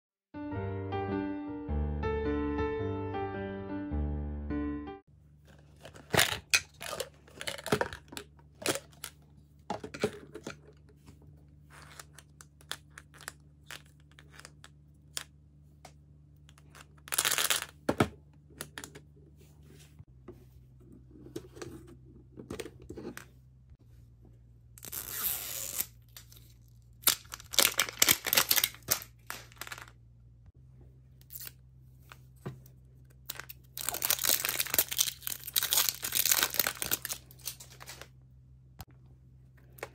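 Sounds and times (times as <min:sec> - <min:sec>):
plastic wrap crinkling and tearing: 0:24.8 - 0:29.9, 0:33.3 - 0:38.1.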